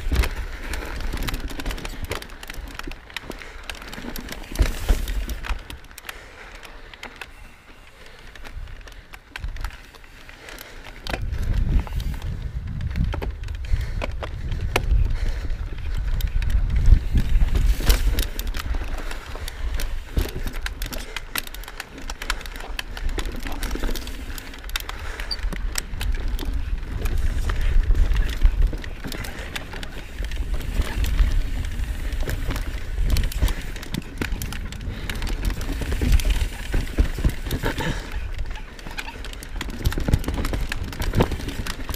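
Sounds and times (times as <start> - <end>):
tyres rolling over dirt: 0.0 - 13.1, 14.3 - 41.9
bike clicking and clattering: 0.0 - 41.9
wind buffeting microphone: 11.1 - 20.9, 23.6 - 38.6.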